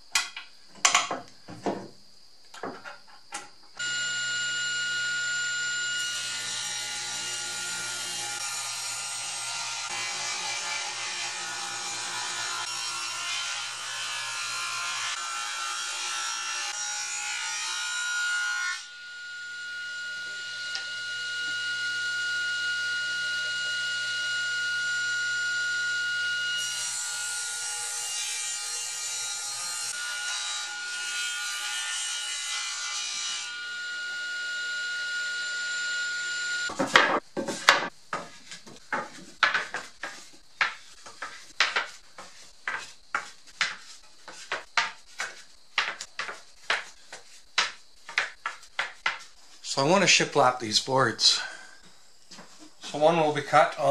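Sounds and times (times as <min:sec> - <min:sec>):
table saw cutting wood: 0:03.8 - 0:37.9
wooden boards clacking together: 0:36.7 - 0:42.9, 0:43.6 - 0:49.3.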